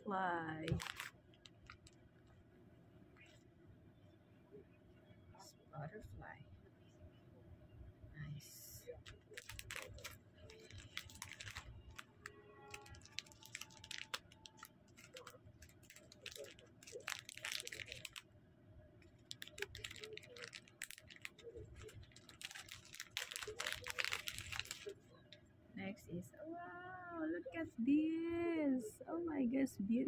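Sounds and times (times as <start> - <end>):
plastic packaging crinkling: 0.6 - 2.0, 9.0 - 18.2, 19.0 - 25.3.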